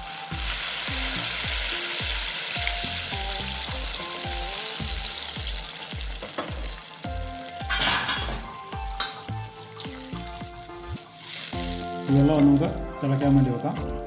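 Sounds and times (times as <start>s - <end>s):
water sizzling in hot pan: 0.0s - 14.0s.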